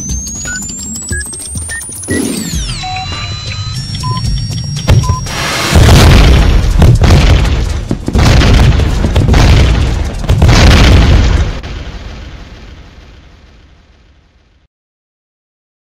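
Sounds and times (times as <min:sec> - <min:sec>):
timer short beep: 0:00.0 - 0:05.5
bomb explosion rumbling: 0:04.9 - 0:14.7.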